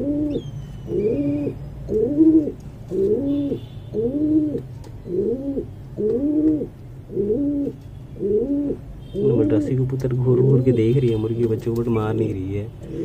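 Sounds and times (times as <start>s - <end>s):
pigeon cooing: 0.0s - 9.7s.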